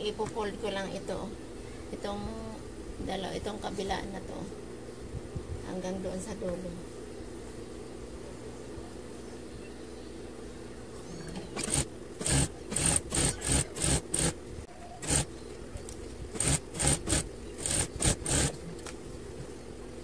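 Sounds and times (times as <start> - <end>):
steady low hum: 0.0 - 20.0
sewing machine stitching: 11.4 - 14.4, 15.0 - 15.3, 16.3 - 18.6.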